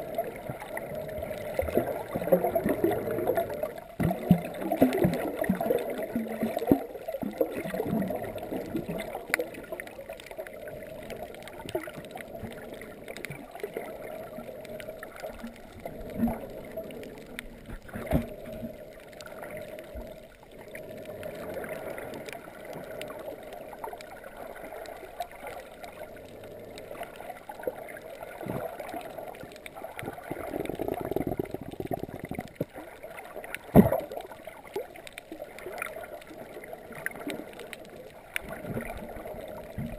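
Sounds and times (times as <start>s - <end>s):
muffled underwater water rushing: 0.0s - 39.9s
underwater clicks: 0.0s - 39.9s
underwater knocks: 33.7s - 34.1s.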